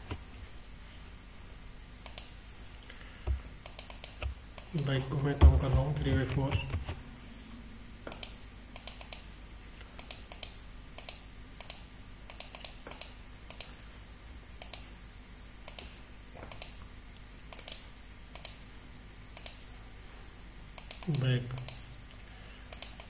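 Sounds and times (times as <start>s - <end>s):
computer mouse and keyboard clicking: 2.0s - 2.3s, 3.3s - 7.0s, 8.1s - 9.3s, 9.9s - 13.7s, 17.5s - 17.8s, 18.4s - 18.6s, 22.7s - 23.0s.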